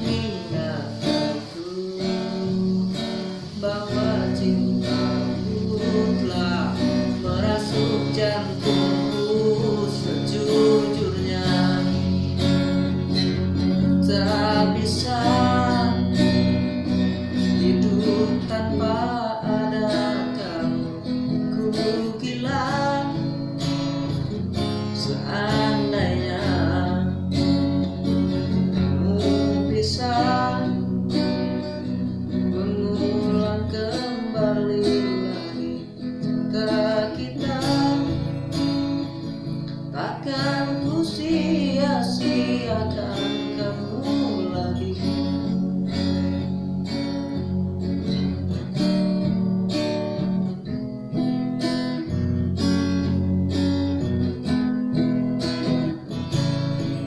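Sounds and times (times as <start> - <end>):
man singing: 0.0 - 47.4
acoustic guitar strumming: 0.0 - 57.0.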